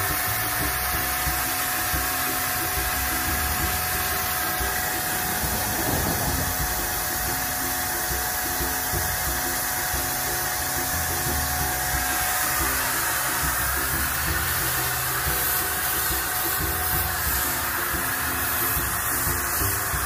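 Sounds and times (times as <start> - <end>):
paint spray hissing: 0.0 - 20.0
paint sprayer motor whine: 0.0 - 20.0.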